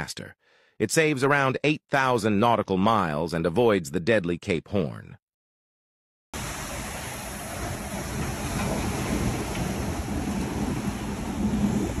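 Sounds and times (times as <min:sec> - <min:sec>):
sea waves rushing and churning: 0:06.4 - 0:12.0
wind on microphone: 0:06.4 - 0:12.0.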